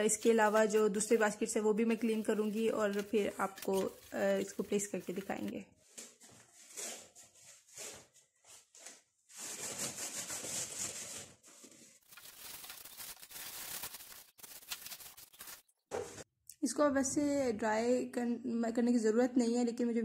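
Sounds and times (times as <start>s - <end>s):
sponge scrubbing plastic basket: 0.0s - 5.6s, 9.4s - 15.6s.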